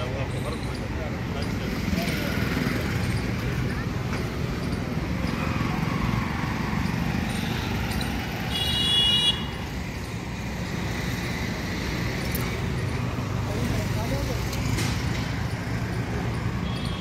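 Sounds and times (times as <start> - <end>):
low rumble of vehicle engines: 0.0 - 17.0
car horn honk: 8.5 - 9.5.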